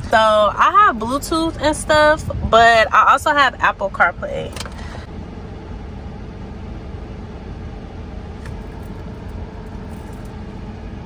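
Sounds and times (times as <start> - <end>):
air-conditioning fan blowing: 0.0 - 11.0
car engine idling: 4.5 - 11.0.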